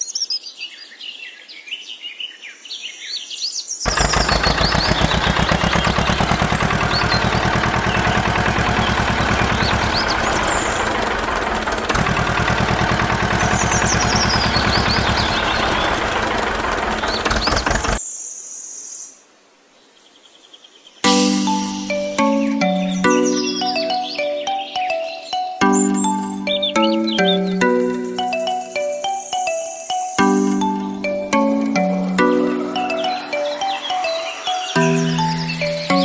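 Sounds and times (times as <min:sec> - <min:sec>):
birds chirping: 0:03.9 - 0:18.0, 0:20.9 - 0:36.0
tractor engine running: 0:03.9 - 0:18.0, 0:21.1 - 0:25.0, 0:25.6 - 0:29.5, 0:30.2 - 0:36.0.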